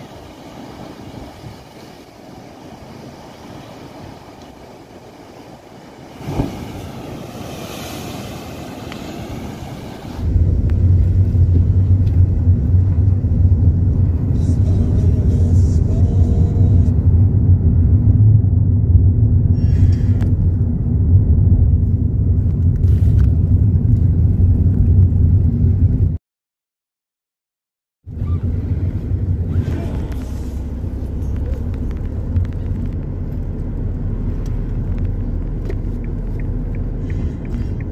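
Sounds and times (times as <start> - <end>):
sea surf on rocky shore: 0.0 - 11.2
car interior rumble while driving: 10.2 - 26.2, 28.1 - 37.9.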